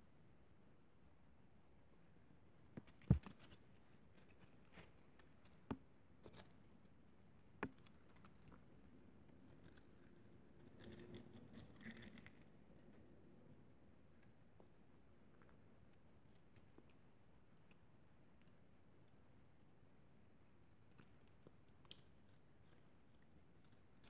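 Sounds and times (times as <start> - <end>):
soft rustling: 2.3 - 6.9.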